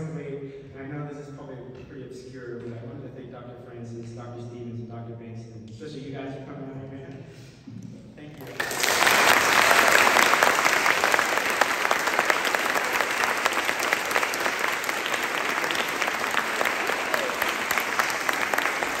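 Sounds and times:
audience applauding: 8.4 - 19.0.

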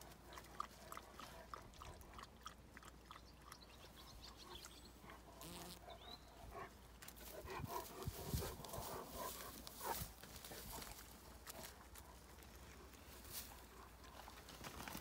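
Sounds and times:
faint clicks and rustles: 6.9 - 15.0.

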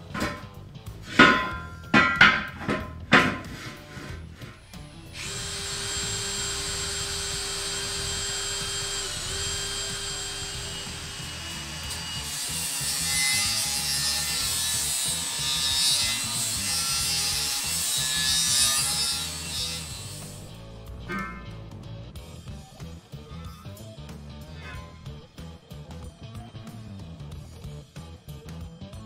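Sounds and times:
grinder cutting steel: 0.0 - 21.6
cordless grinder whining: 4.2 - 20.6.

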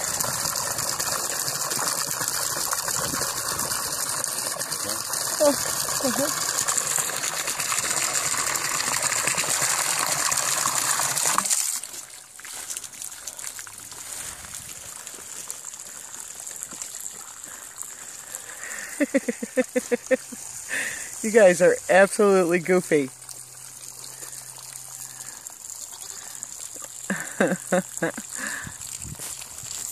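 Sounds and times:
hose nozzle spraying water: 0.0 - 15.0
water trickling: 0.0 - 29.9.

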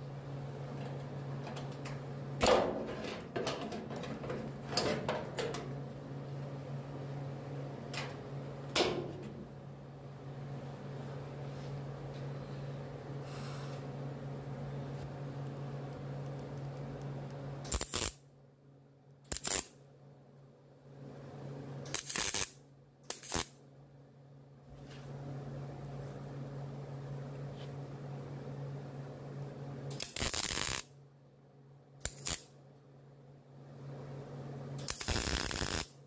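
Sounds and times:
steady low hum: 0.0 - 36.0
welder crackling bursts: 17.6 - 18.2, 19.3 - 19.7, 21.9 - 23.6, 29.9 - 30.9, 32.0 - 32.5, 34.8 - 36.0.

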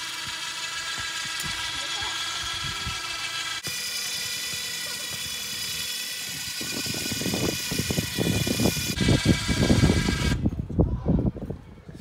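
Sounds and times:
winch motor whining: 0.0 - 10.5.

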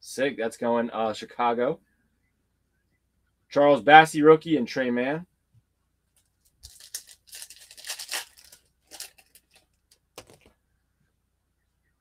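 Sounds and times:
foil wrapper tearing and crinkling: 6.6 - 10.4.

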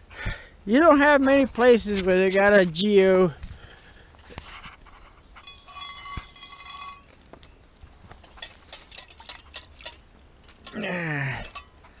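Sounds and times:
metal pot clicks and clinks: 8.4 - 10.0, 11.4 - 11.8.

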